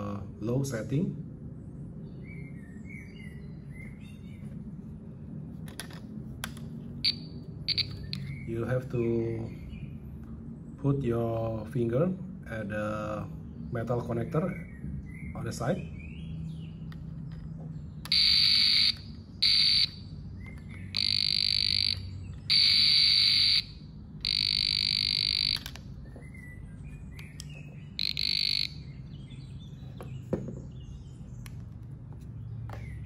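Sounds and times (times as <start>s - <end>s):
voltage tester shrill beeps: 7.0s - 8.3s, 18.1s - 20.0s, 20.9s - 25.8s, 28.0s - 28.9s.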